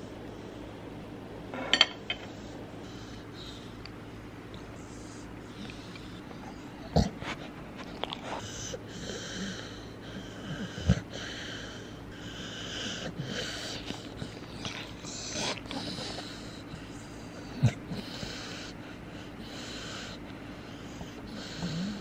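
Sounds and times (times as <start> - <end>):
dog sniffing and snorting: 4.6 - 22.0.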